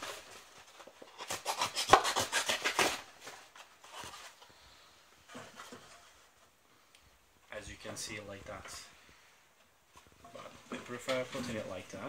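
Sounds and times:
cardboard being sawn: 0.0s - 4.2s.

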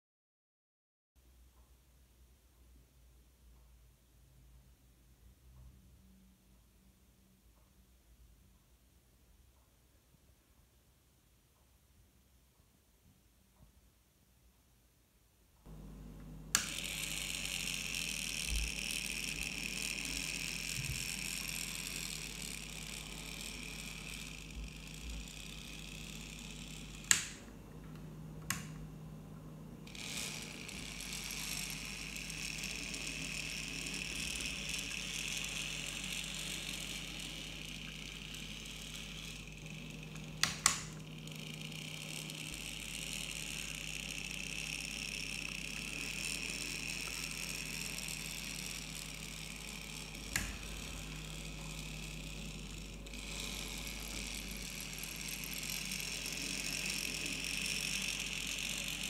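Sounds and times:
model train motor whirring: 16.5s - 28.8s, 29.8s - 59.0s
sharp clicks: 26.8s - 28.8s, 49.8s - 51.8s.

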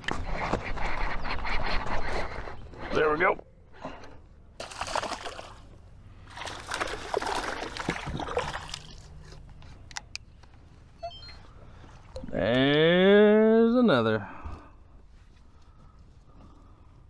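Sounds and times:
water sloshing against a kayak: 4.6s - 9.8s.

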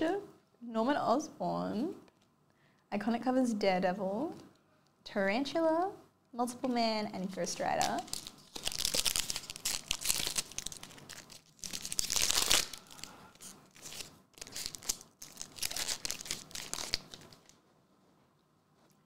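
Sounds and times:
foil wrapper crinkling and tearing: 7.7s - 17.6s.

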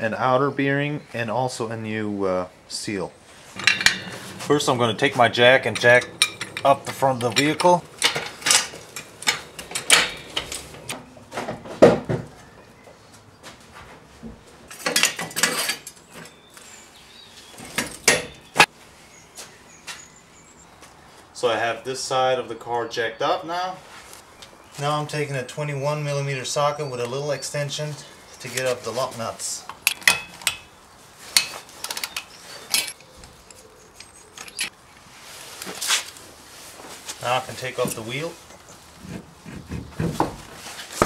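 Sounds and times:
metal jack clanking and rattling: 3.6s - 11.0s, 29.8s - 30.7s, 31.4s - 34.7s.

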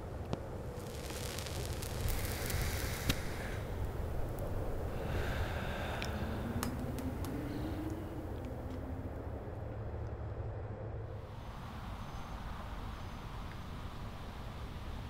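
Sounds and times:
low steady rumble: 0.0s - 13.4s
cigarette crackling hiss: 0.3s - 8.9s
rising hum: 0.8s - 11.1s
breathy exhale of smoke: 2.0s - 4.1s, 4.8s - 8.3s.

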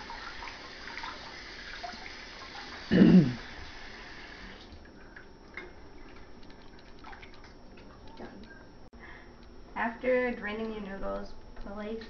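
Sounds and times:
water drips and taps: 4.8s - 8.5s.

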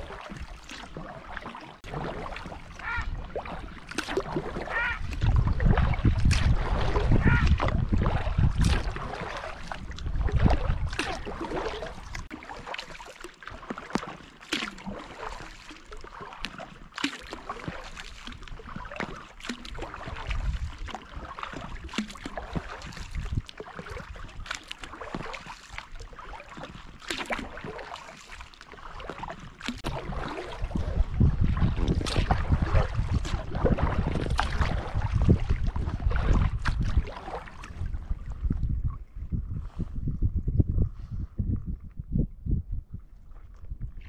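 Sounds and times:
paddle splashing in water: 0.0s - 39.0s
wind rumbling on microphone: 1.8s - 12.4s, 18.3s - 27.6s, 29.0s - 44.0s.

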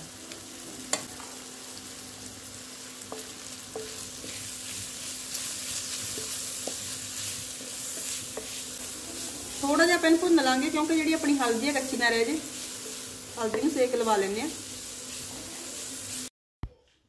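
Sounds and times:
vegetables sizzling in oil: 0.0s - 16.3s
wooden spatula tapping pan: 3.0s - 4.4s, 5.8s - 7.0s, 7.8s - 8.6s.

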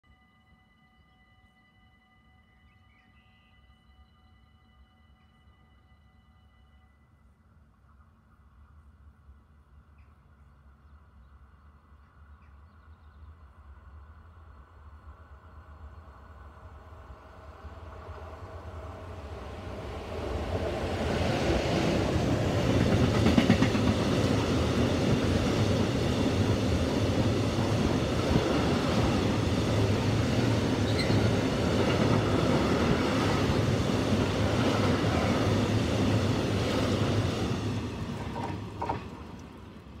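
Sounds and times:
train wheels rumbling on rails: 16.6s - 40.0s.

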